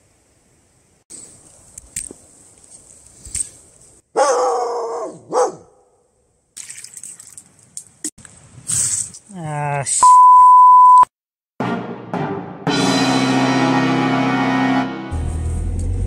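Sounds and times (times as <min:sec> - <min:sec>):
dog barking: 0:04.1 - 0:06.0.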